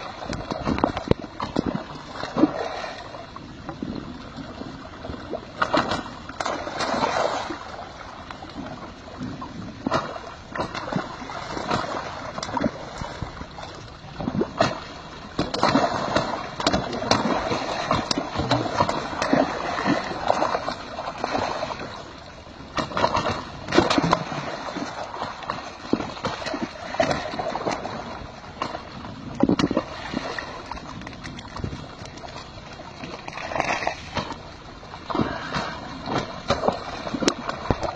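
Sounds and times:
fish splashing: 0:05.6 - 0:07.8, 0:14.2 - 0:21.9
water gurgling at pipe outlet: 0:08.6 - 0:21.9.

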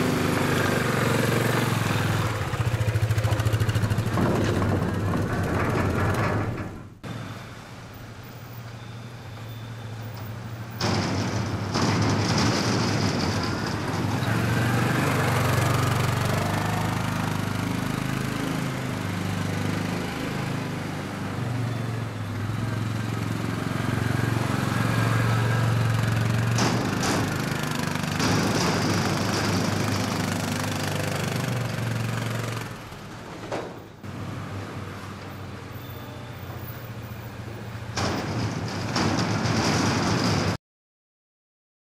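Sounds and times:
atv engine running: 0:00.0 - 0:06.1, 0:14.1 - 0:21.2.

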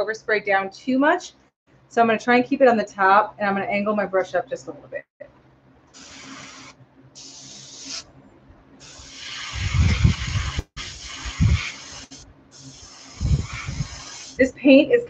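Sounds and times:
airbrush spraying air hiss: 0:06.0 - 0:08.1, 0:08.8 - 0:14.5.

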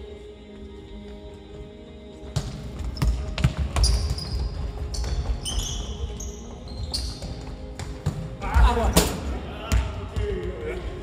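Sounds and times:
running footsteps: 0:00.0 - 0:08.0
sneakers squeaking on boards: 0:02.2 - 0:08.7.

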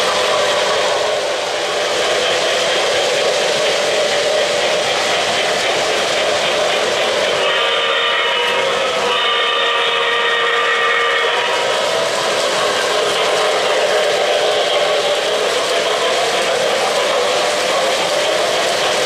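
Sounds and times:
model train rolling rumble: 0:00.0 - 0:19.0
model locomotive whistle: 0:07.3 - 0:14.2.

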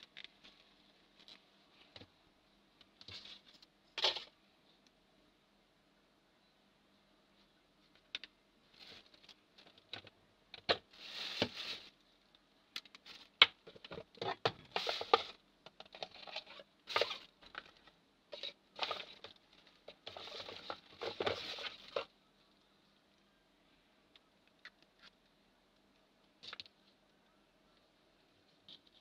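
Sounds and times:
rustling of pen and cable: 0:00.0 - 0:02.2, 0:02.8 - 0:04.9, 0:07.4 - 0:22.7, 0:24.1 - 0:29.0.

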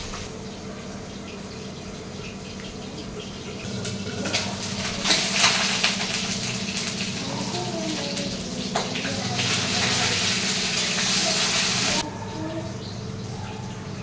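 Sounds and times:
steady low hum: 0:00.0 - 0:14.0
fish sizzling in a pan: 0:03.8 - 0:12.0.

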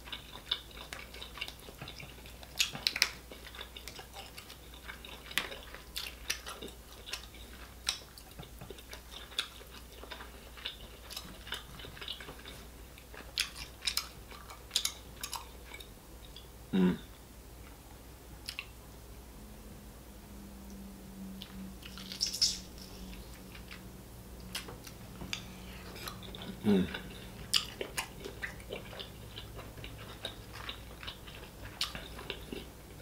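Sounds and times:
chewing and mouth sounds: 0:00.0 - 0:16.5, 0:18.4 - 0:18.8, 0:21.4 - 0:33.0
low hum: 0:15.9 - 0:31.4.

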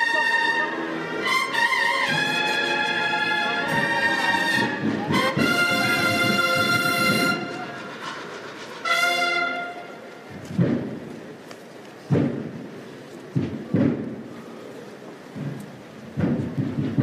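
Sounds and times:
brass band playing held chords: 0:00.0 - 0:10.1.

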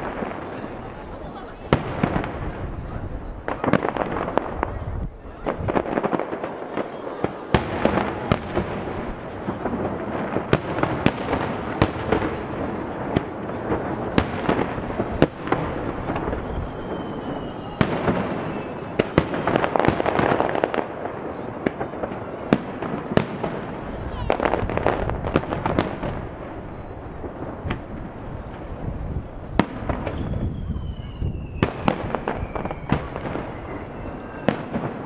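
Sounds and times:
firework bangs: 0:00.0 - 0:35.0
faint falling whistle: 0:16.4 - 0:19.2, 0:30.1 - 0:34.7.

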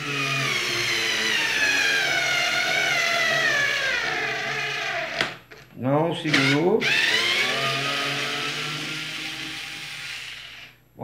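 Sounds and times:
cordless screwdriver motor whine: 0:06.3 - 0:10.7.

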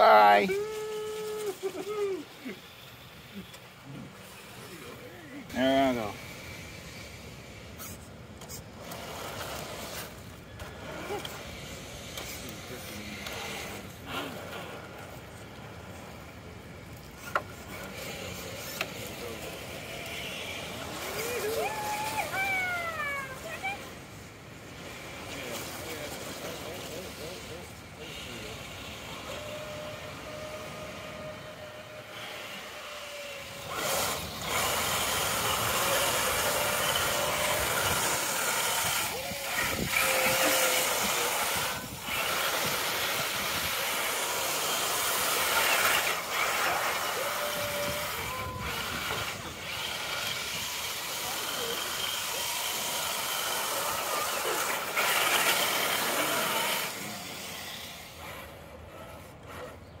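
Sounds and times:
rc truck motor whine: 0:00.0 - 1:00.0
trucks splashing through water: 0:00.7 - 1:00.0.

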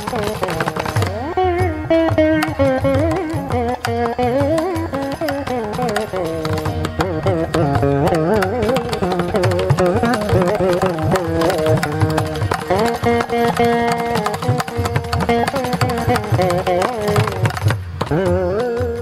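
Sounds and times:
mridangam strokes: 0:00.0 - 0:19.0
veena melody: 0:00.0 - 0:19.0.

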